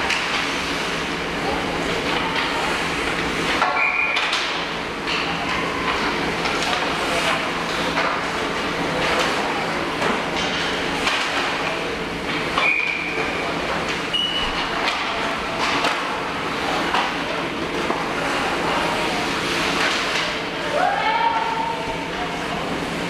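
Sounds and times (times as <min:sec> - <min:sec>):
sticks and pucks clacking: 0:00.0 - 0:00.5, 0:02.0 - 0:09.4, 0:10.0 - 0:14.0, 0:14.7 - 0:18.2, 0:19.5 - 0:20.5.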